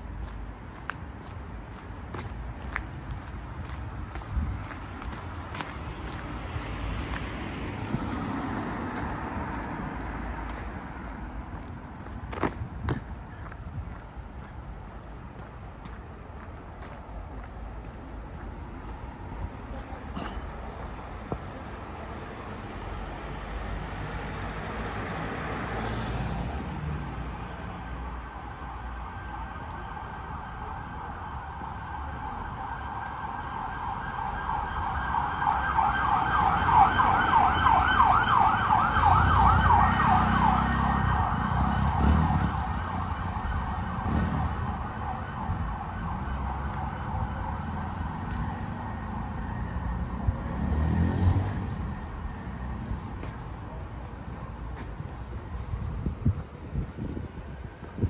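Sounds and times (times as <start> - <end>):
road traffic rumbling: 0.0 - 58.0
emergency vehicle siren: 21.6 - 58.0.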